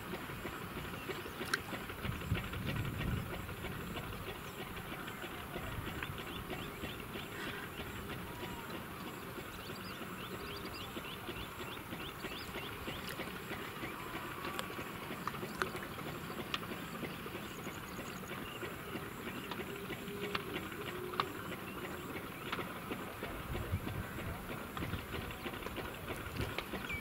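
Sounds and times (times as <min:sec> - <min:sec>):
open-air background noise: 0:00.0 - 0:27.0
bird chirping: 0:03.0 - 0:24.4, 0:25.2 - 0:27.0
faint clicks: 0:11.9 - 0:27.0.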